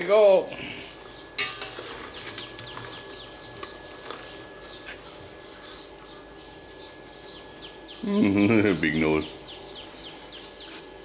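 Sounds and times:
birds chirping: 0.6s - 11.0s
beetles rattling into metal pot: 1.4s - 4.5s.

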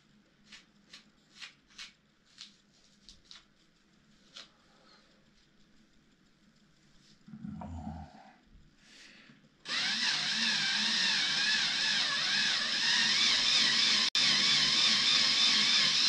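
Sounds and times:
cordless drill milling resin: 9.6s - 16.0s.

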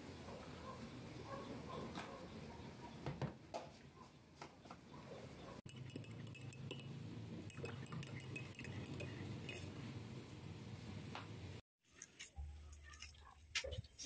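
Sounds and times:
teaspoon clinking in mug: 5.7s - 6.9s, 7.5s - 9.7s.

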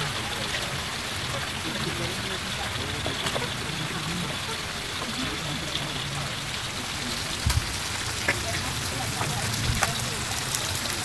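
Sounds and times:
fish sizzling in a wok: 0.1s - 11.0s.

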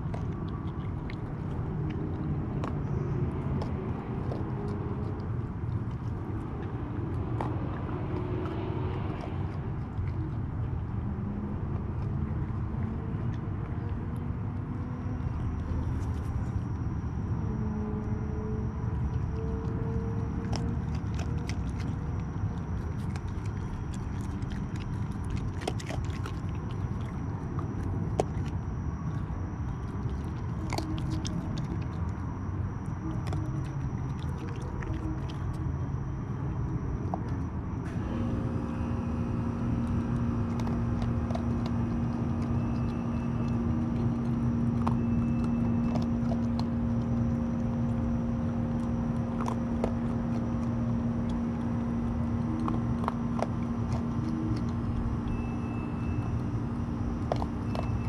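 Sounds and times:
animal crunching dry kibble: 0.0s - 58.0s
steady low hum: 0.0s - 58.0s.

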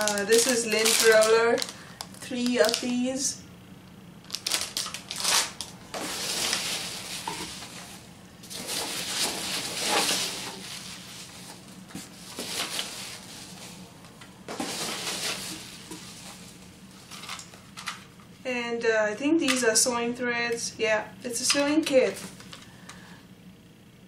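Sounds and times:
packing peanuts rustling: 0.0s - 3.3s, 4.2s - 17.8s.

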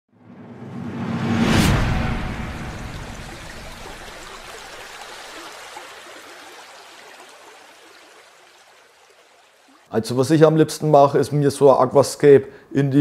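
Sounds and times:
rushing water-like whoosh: 0.3s - 8.7s.

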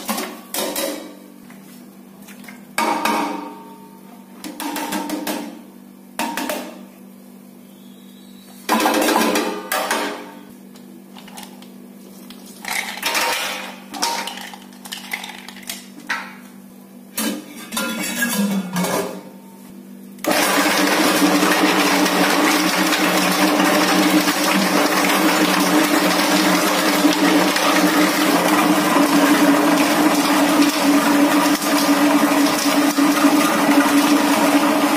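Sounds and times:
dough mixer running: 20.2s - 34.9s.

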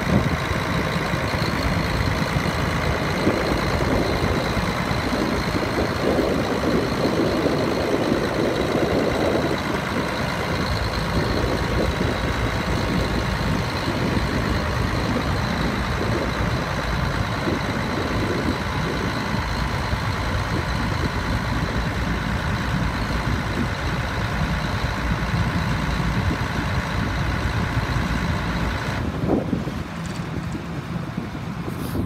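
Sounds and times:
diesel tractor engine running: 0.0s - 32.0s.

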